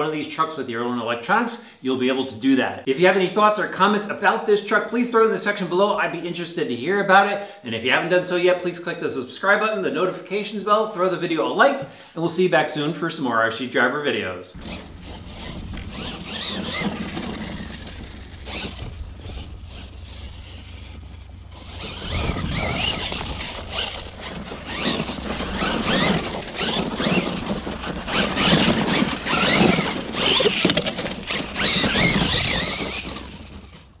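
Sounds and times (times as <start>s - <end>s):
toy truck motor whining: 14.5s - 34.0s
low rumble: 14.6s - 28.4s.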